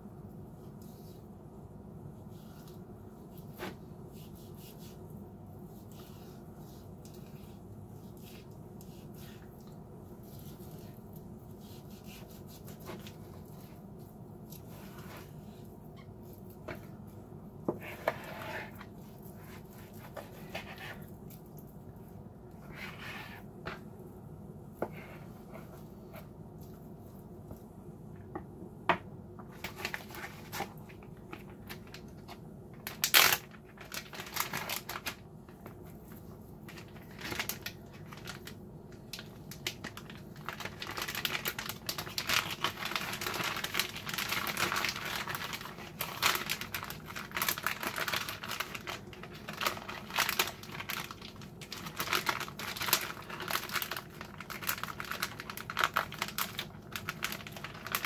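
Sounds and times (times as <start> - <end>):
plastic bag crinkling: 29.5 - 35.7, 36.6 - 58.0.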